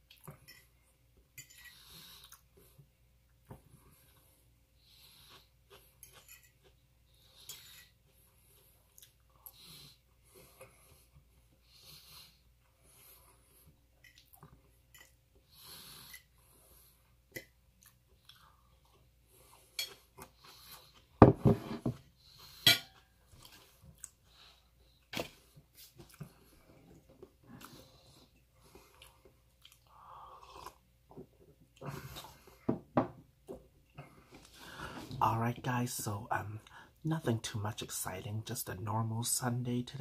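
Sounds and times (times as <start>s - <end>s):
person chewing: 5.2s - 9.6s, 17.3s - 21.2s, 23.0s - 30.9s.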